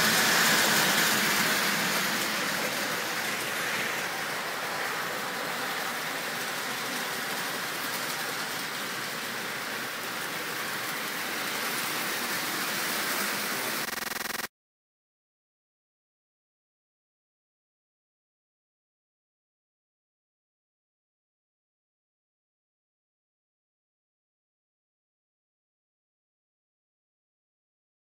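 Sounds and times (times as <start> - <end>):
toy train wheels rumbling on track: 0.0 - 13.9.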